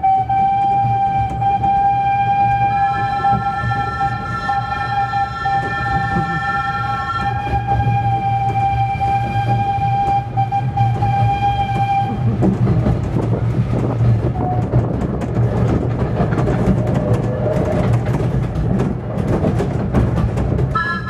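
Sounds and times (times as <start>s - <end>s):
locomotive signal tone: 0.0s - 12.4s, 20.8s - 21.0s
miniature train rumbling: 0.0s - 21.0s.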